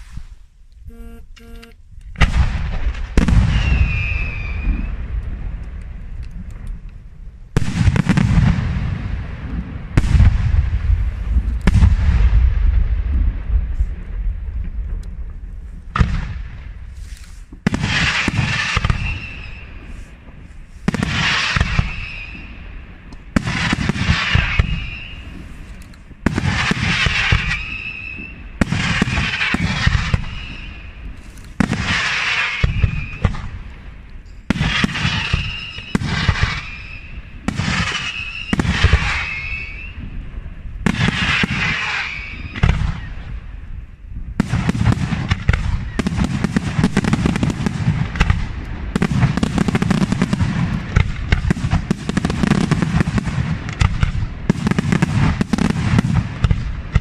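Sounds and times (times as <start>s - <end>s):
fireworks hissing: 0.0s - 0.5s, 16.8s - 22.5s, 23.4s - 33.5s, 40.8s - 43.0s
fireworks shells bursting: 16.0s - 22.5s, 23.4s - 33.5s, 34.2s - 40.0s.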